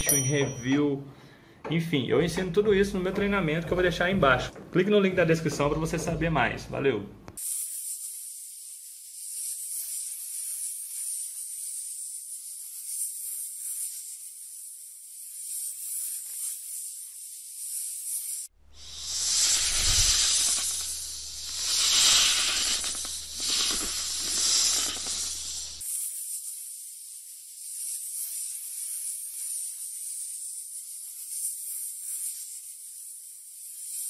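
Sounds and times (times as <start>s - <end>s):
high-pitched hissing: 0.0s - 0.3s, 7.4s - 26.1s.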